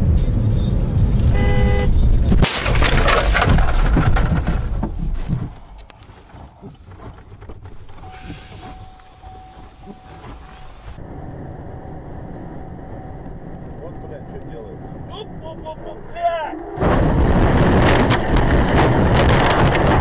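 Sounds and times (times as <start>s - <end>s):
vehicle engine rumbling: 0.0s - 20.0s
car horn honk: 1.3s - 2.0s
loud collision impact: 2.3s - 4.9s
crunching and scattering debris: 2.3s - 8.0s.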